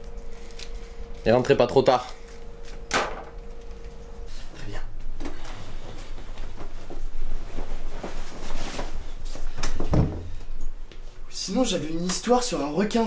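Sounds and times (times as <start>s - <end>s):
clothing rustling: 5.2s - 9.9s.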